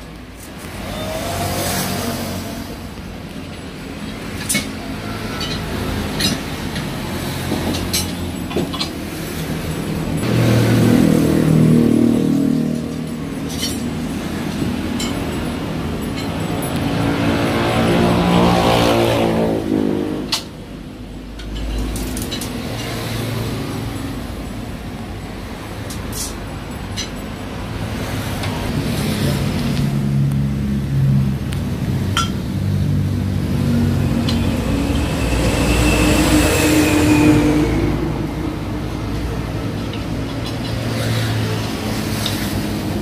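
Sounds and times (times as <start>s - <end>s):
metallic clinks: 12.6s - 17.4s, 21.3s - 28.7s.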